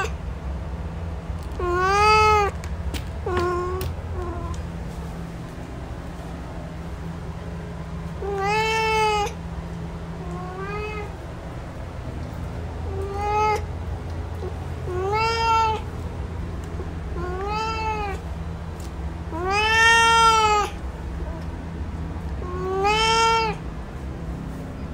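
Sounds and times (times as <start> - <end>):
low steady hum: 0.0 - 24.9
cat meowing: 1.6 - 2.6, 3.2 - 4.6, 8.2 - 9.4, 10.2 - 11.2, 12.8 - 13.7, 14.4 - 15.9, 17.1 - 18.2, 19.3 - 21.5, 22.4 - 23.6.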